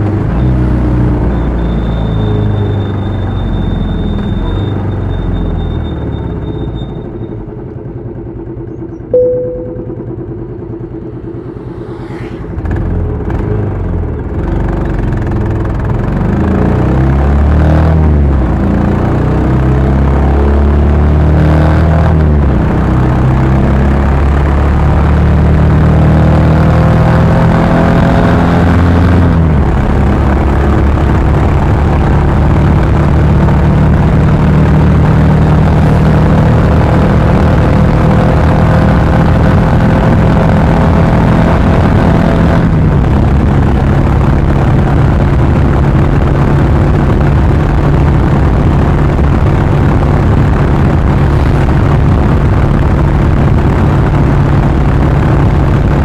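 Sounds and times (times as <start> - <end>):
motorcycle engine at road speed: 0.0 - 56.0
wind rush on microphone: 39.1 - 56.0.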